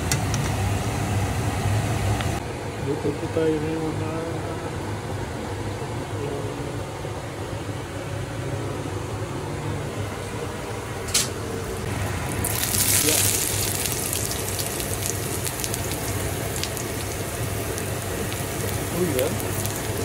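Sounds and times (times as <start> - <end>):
steady low hum: 0.0 - 20.0
food sizzling in hot oil: 11.9 - 20.0.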